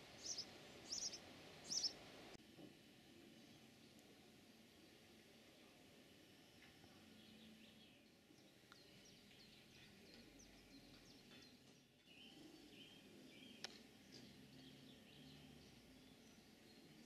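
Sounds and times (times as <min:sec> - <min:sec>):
small birds chirping: 0:00.0 - 0:02.0, 0:06.3 - 0:17.0
whistled bird notes: 0:00.2 - 0:02.0.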